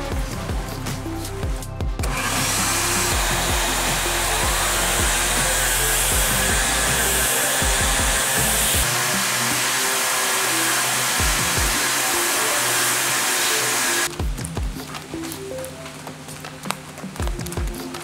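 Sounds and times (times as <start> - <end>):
background music with bass line: 0.0 - 18.0
orbital sander whirring: 2.0 - 14.1.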